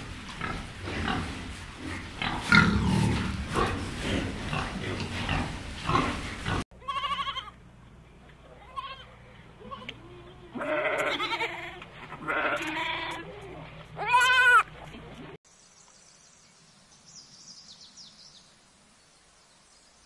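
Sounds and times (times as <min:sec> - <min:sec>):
pig grunting: 0:00.4 - 0:06.6
goats bleating: 0:06.7 - 0:07.6, 0:08.5 - 0:14.8.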